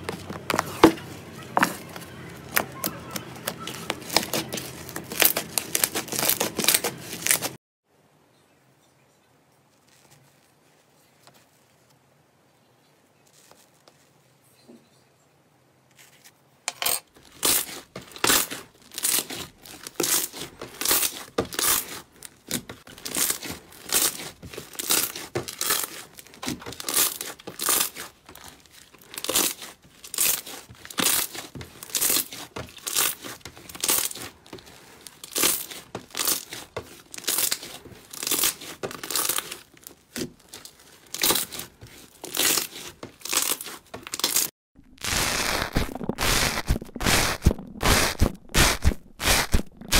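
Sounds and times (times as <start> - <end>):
slime crackling tears: 42.3 - 49.9.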